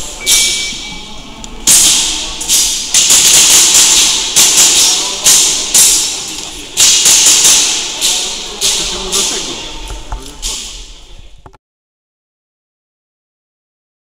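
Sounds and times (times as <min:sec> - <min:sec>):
airsoft pistol shots: 0:01.7 - 0:09.2.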